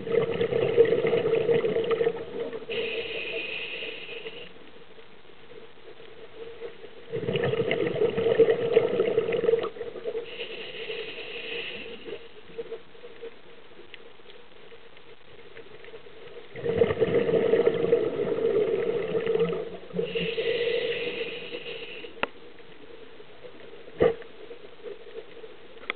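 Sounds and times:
exhaled bubbles burbling underwater: 0.0s - 2.8s, 7.0s - 10.4s, 16.5s - 21.5s
regulator inhale hiss: 2.6s - 4.6s, 10.2s - 12.4s, 19.9s - 22.3s.

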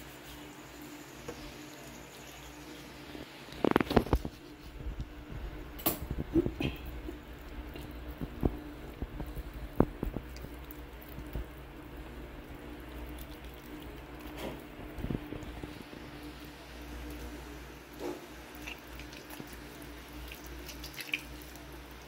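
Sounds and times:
low steady hum: 0.0s - 22.0s
soft wet squishing: 6.3s - 22.0s.

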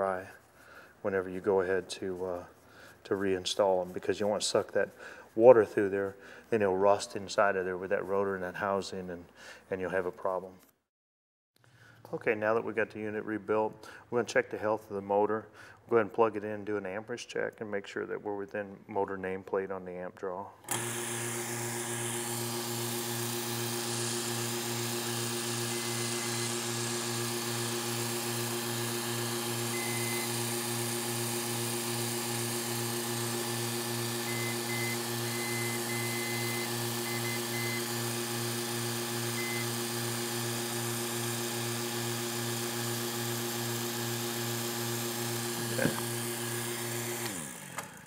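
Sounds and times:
pump motor humming: 20.7s - 48.0s.

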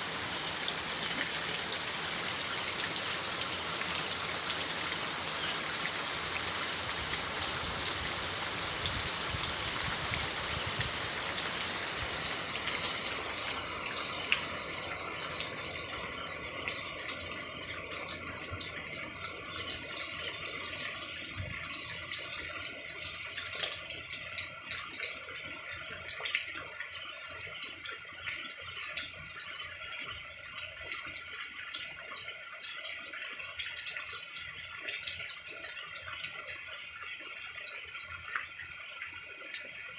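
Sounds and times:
rain falling: 0.0s - 29.1s
water dripping: 0.0s - 39.9s.

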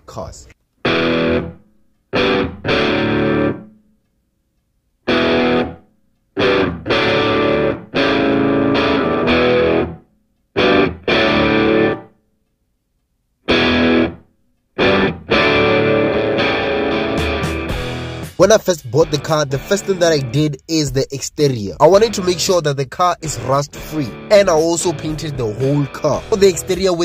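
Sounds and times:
distorted electric guitar chords: 0.8s - 3.7s, 5.1s - 5.8s, 6.4s - 10.0s, 10.6s - 12.1s, 13.5s - 14.2s, 14.8s - 20.7s, 21.8s - 27.0s.

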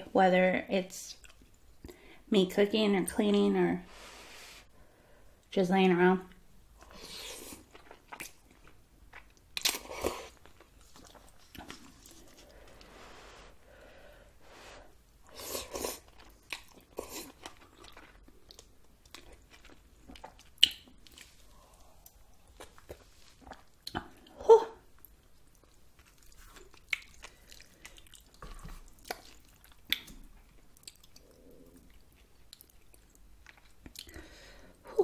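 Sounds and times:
person chewing and eating noodles: 6.8s - 34.3s.

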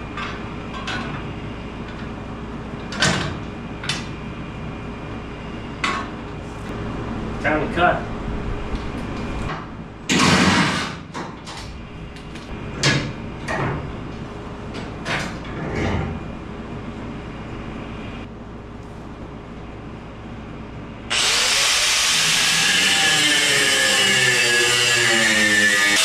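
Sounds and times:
angle grinder grinding metal: 21.1s - 26.0s.

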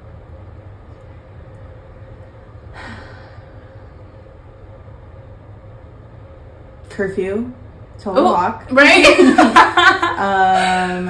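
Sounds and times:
low background hum: 0.0s - 11.0s
breathy sigh: 2.7s - 4.0s.

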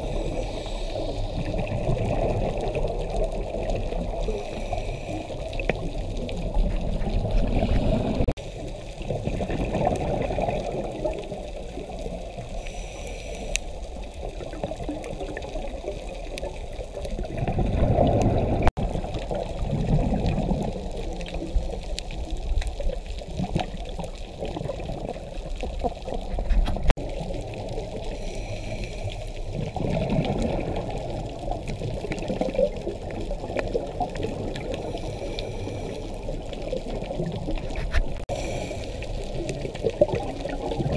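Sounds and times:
underwater diver breathing: 0.0s - 1.7s, 4.1s - 5.8s, 12.4s - 14.2s, 27.9s - 29.8s, 34.6s - 36.7s, 37.8s - 39.7s
bubbles gurgling underwater: 0.0s - 12.6s, 13.9s - 28.3s, 29.4s - 40.9s.

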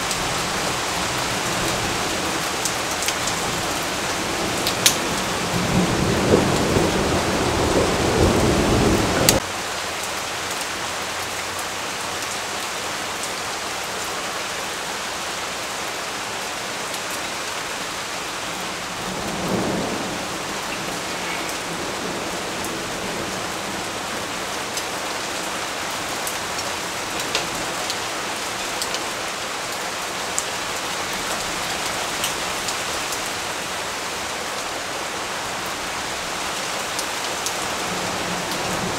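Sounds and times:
steady rain falling: 0.0s - 38.9s
low roll of thunder: 4.3s - 9.4s.

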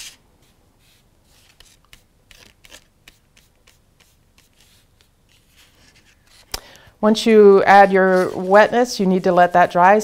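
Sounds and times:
wet paintbrush stroking paper: 0.0s - 6.5s, 7.8s - 9.8s.

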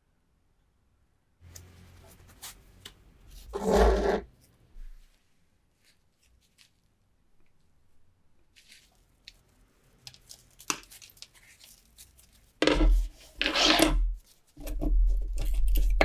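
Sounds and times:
bayonet scraping a tabletop: 3.4s - 4.3s, 12.6s - 16.0s.

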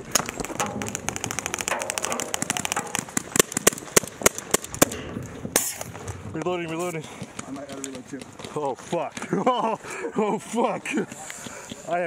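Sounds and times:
paintball marker shots: 0.1s - 5.9s.

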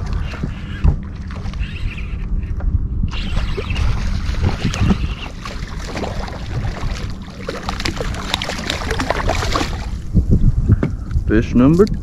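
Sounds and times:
wind rumble on microphone: 0.0s - 12.0s
fish splashing at water surface: 3.6s - 10.0s.

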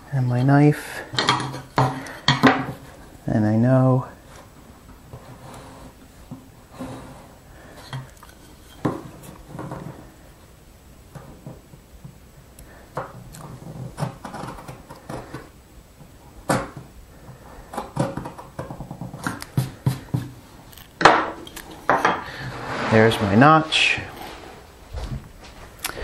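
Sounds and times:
marking knife scraping wood: 22.3s - 23.4s.

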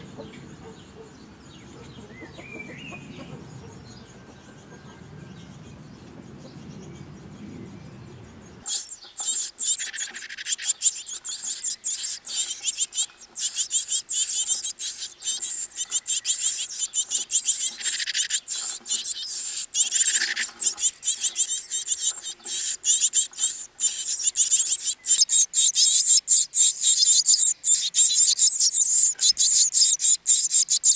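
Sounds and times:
low background rumble: 0.0s - 8.7s
nestlings begging calls: 0.0s - 30.9s.

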